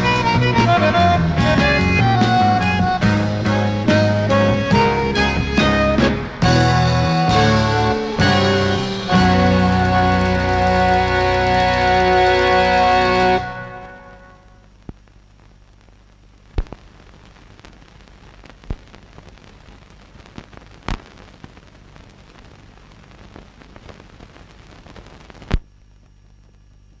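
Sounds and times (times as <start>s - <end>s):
low hum: 0.0s - 15.4s
film soundtrack hiss: 0.0s - 27.0s
clicks and pops: 14.7s - 15.2s, 16.5s - 16.9s, 18.4s - 19.3s, 20.2s - 21.6s, 24.8s - 26.9s.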